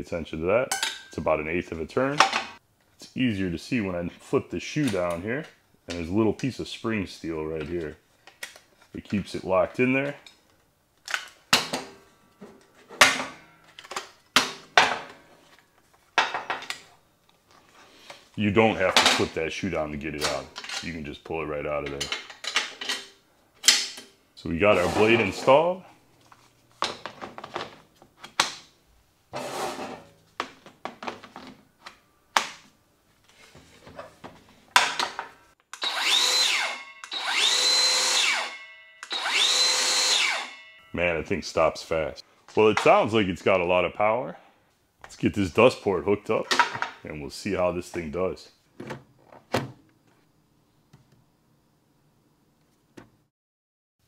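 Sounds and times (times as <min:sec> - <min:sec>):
circular saw whine: 0:35.8 - 0:41.2.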